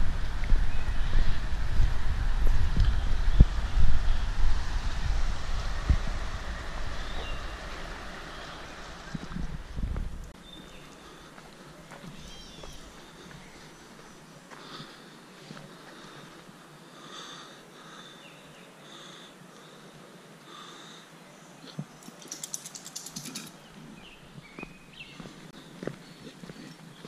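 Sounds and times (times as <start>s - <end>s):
soft footsteps on trail: 7.0s - 17.2s, 23.5s - 27.0s
songbirds singing: 7.0s - 27.0s
fast rattling bird trill: 22.0s - 23.6s.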